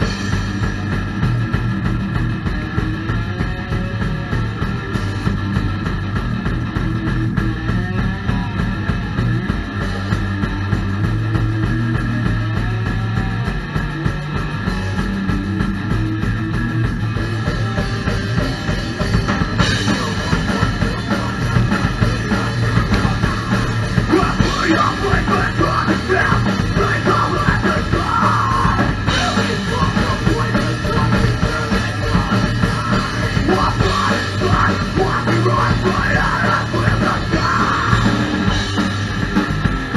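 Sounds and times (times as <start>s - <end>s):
rock band playing live: 0.0s - 39.9s
shouted vocals: 19.9s - 38.4s.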